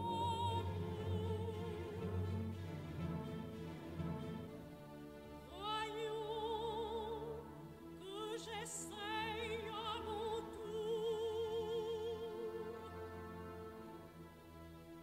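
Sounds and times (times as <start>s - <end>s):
operatic voice singing: 0.0s - 2.4s, 5.5s - 12.9s
orchestral accompaniment: 0.0s - 15.0s.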